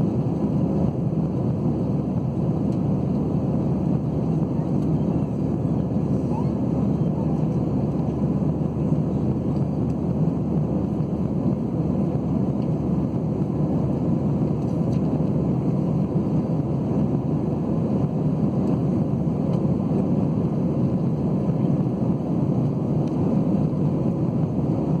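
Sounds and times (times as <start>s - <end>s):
jet engine roar in cabin: 0.0s - 25.0s.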